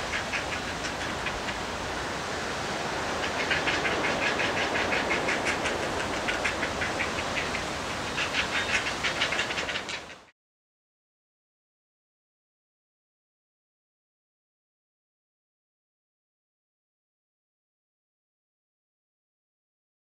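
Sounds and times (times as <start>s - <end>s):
heron chicks clicking calls: 0.0s - 1.7s, 3.2s - 10.3s
steady background hiss: 0.0s - 10.3s.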